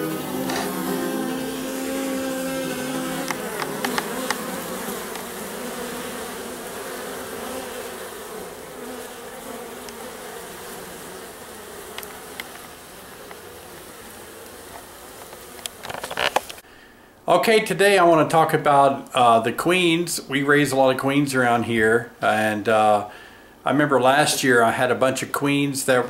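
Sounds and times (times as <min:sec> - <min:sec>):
honey bees buzzing: 0:00.0 - 0:16.6.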